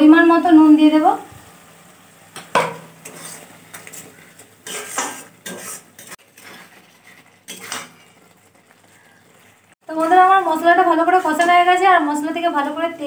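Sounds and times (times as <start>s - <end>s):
metal spatula scraping pan: 2.6s - 10.2s.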